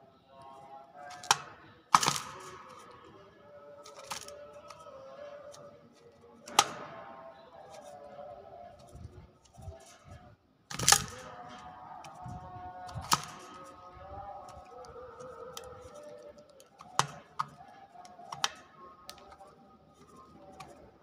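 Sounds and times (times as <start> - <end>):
faint steady tones: 0.0 - 21.0
bird tapping in wire cage: 1.1 - 2.8, 3.8 - 4.8, 10.7 - 13.8, 14.4 - 20.8.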